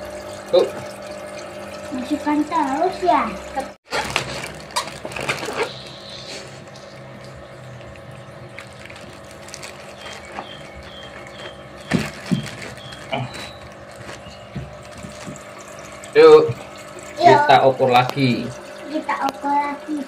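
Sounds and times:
aquarium pump humming: 0.0 - 20.0
plastic bag handling: 3.9 - 5.8, 8.4 - 15.9.

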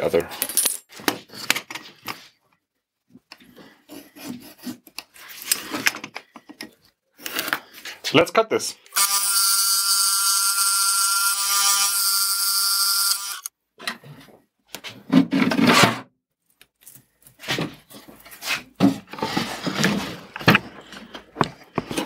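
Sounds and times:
bandsaw cutting plywood: 8.9 - 13.5
wooden parts knocking and rubbing: 16.8 - 22.0.

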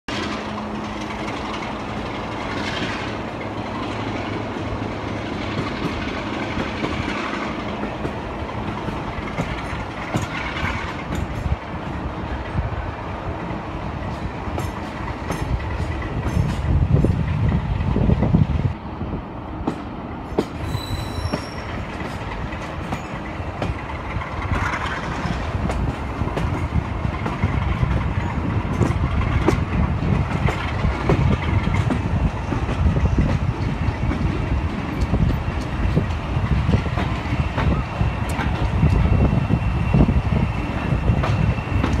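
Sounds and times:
wheels clicking over rail joints: 0.1 - 12.6, 13.4 - 17.1, 19.6 - 39.4
train rumbling: 0.1 - 42.0
high brake squeal: 20.6 - 21.8.

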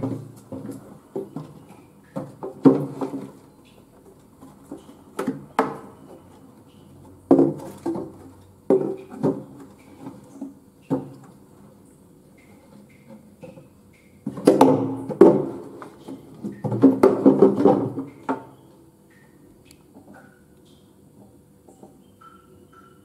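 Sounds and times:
plastic bottles knocking: 0.0 - 3.4, 7.2 - 11.2, 14.2 - 18.6.

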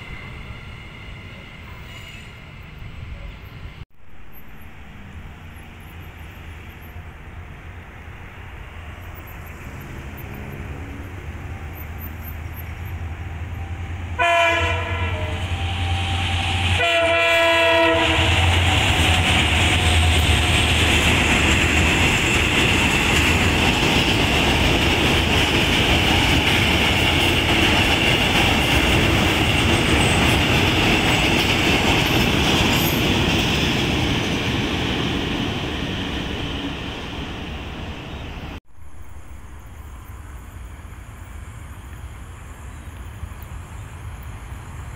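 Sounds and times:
diesel locomotive engine drone: 0.0 - 44.9
train horn blasts: 13.5 - 18.9
train wheels clickety-clack: 17.7 - 36.9.

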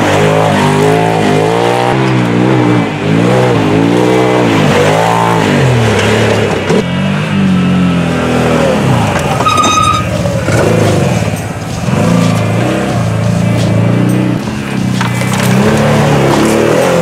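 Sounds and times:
utility vehicle engine revving: 0.0 - 17.0
brief high-pitched tone: 9.4 - 10.1.

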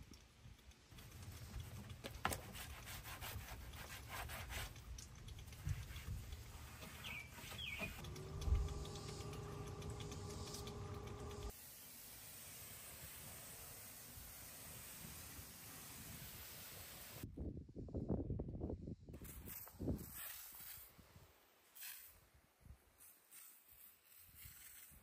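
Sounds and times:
steady hum with overtones: 8.0 - 11.5.

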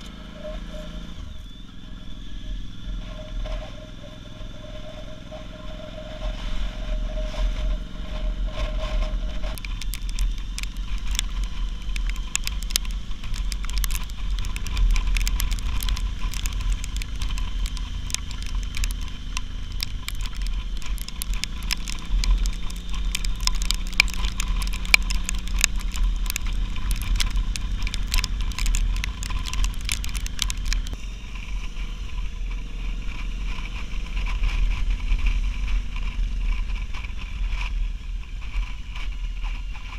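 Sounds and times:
motorcycle engine running: 0.0 - 39.9
steady whine: 0.0 - 39.9
wind rumble on microphone: 0.0 - 39.9
crackling and clicking: 3.0 - 31.0.

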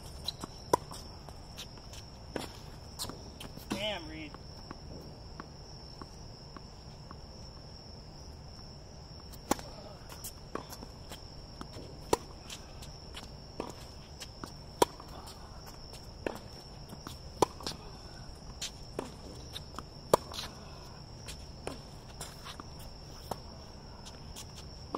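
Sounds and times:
high insect trill: 0.0 - 24.9
tennis ball struck by racket: 9.4 - 9.9.

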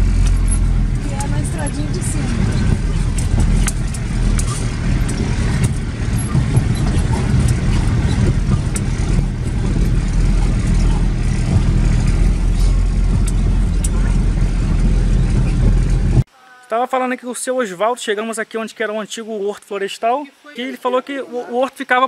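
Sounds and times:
car engine and tyres rumbling: 0.0 - 16.3
sharp ticks and knocks: 0.0 - 16.3.

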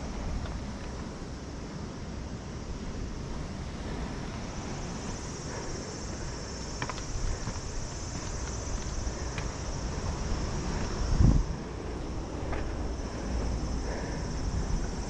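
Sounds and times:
high-pitched insect chorus: 0.0 - 15.0
wind rumbling on microphone: 0.0 - 15.0
footstep clicks: 6.6 - 13.6.

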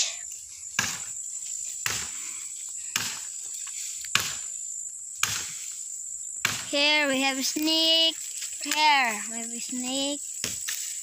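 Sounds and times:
insects trilling: 0.0 - 11.0
axe chopping wood: 0.8 - 1.1, 1.8 - 2.2, 2.9 - 3.3, 4.1 - 4.5, 5.2 - 5.6, 6.4 - 6.8, 10.4 - 10.8.

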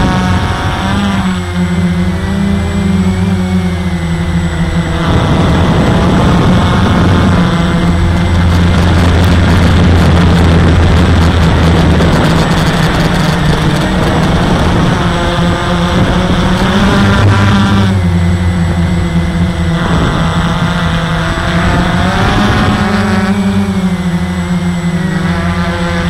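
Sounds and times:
drone propellers whirring: 0.0 - 26.0
rushing wind noise: 0.0 - 26.0.

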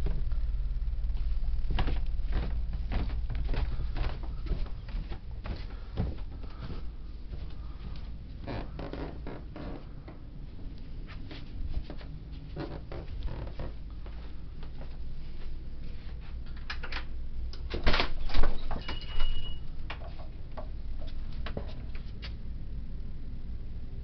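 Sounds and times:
low steady rumble: 0.0 - 24.0
footsteps on carpeted stairs: 1.2 - 16.4, 19.8 - 22.4.

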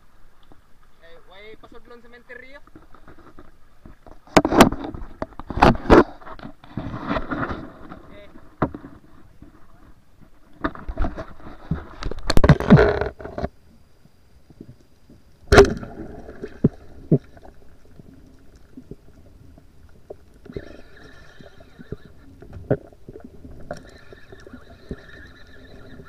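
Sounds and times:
faint high whine: 7.4 - 26.0.

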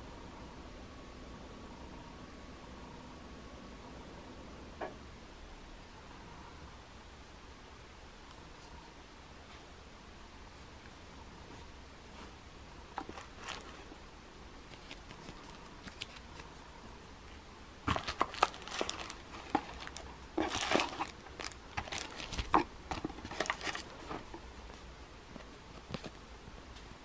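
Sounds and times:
plastic bag crinkling: 13.0 - 13.8, 17.9 - 24.4.

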